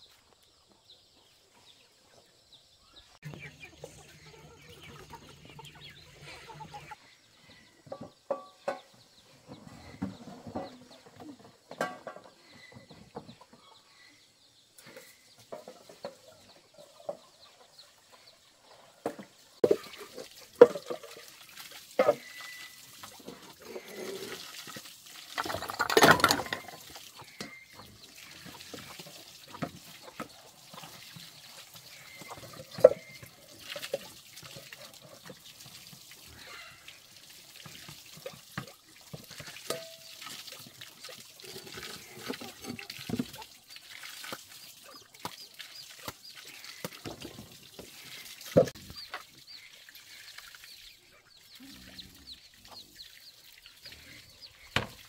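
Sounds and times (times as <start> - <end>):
water splashing in a plastic basin: 19.2 - 55.0.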